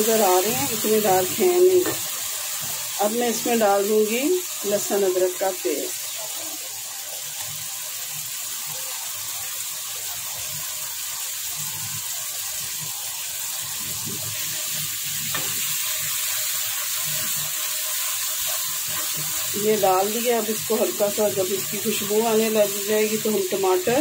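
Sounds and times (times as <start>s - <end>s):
onions sizzling in hot oil: 0.0s - 24.0s.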